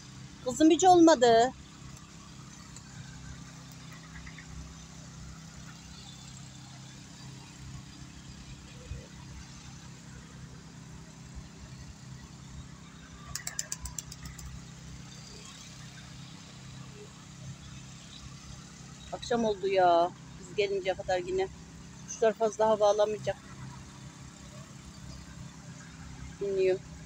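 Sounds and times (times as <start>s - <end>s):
distant machinery engine hum: 0.0s - 27.0s.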